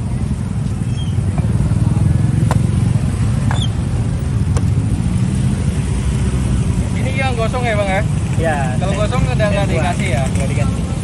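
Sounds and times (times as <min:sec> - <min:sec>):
engine rumbling: 0:00.0 - 0:11.0.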